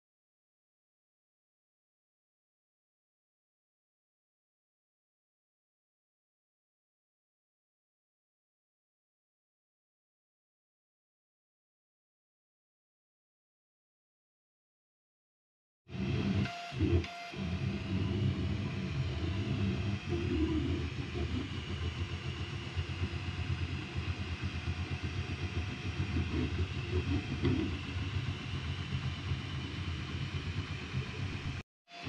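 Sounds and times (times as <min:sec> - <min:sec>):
printer and fans humming: 0:15.9 - 0:32.0
stepper motors whining: 0:15.9 - 0:32.0.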